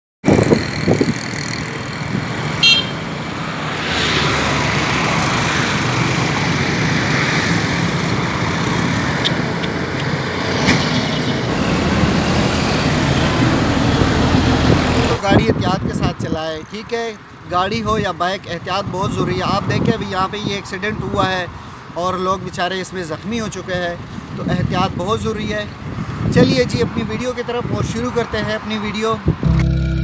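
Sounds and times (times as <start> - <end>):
road traffic passing: 0.2 - 30.0
high-pitched horn toot: 2.6 - 3.0.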